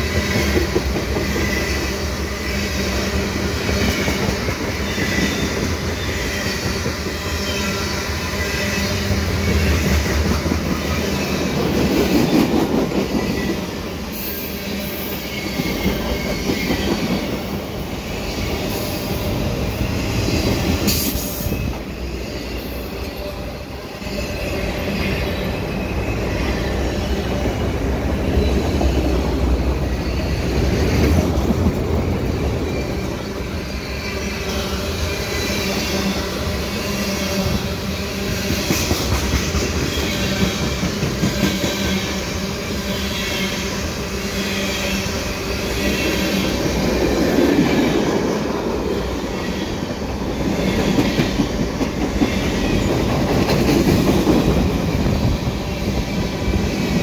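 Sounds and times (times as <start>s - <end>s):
clickety-clack over rail joints: 0.0s - 2.5s, 3.1s - 7.8s, 8.8s - 18.9s, 27.3s - 33.6s, 38.3s - 42.4s, 46.1s - 57.0s
freight train wheels rumbling on rails: 0.0s - 57.0s.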